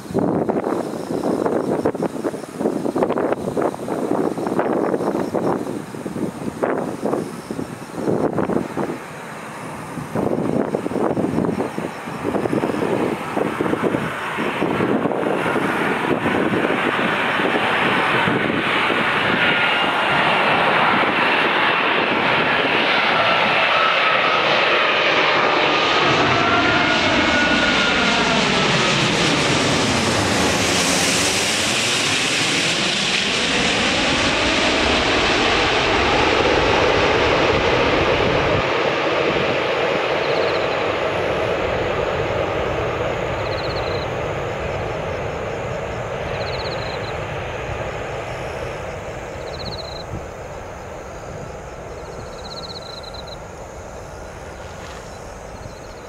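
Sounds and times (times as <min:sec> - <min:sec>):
jet airliner passing overhead: 0:00.0 - 0:56.0.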